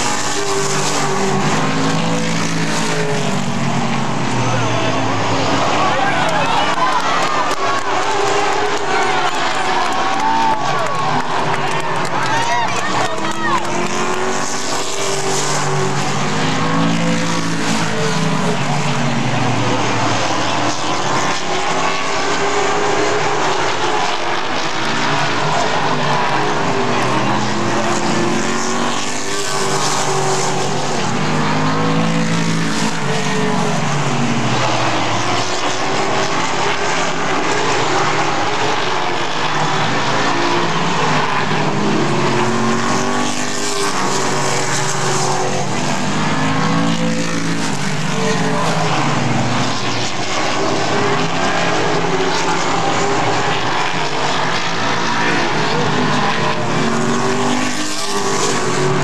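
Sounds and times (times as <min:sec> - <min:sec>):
race car engines passing: 0:00.0 - 0:59.0.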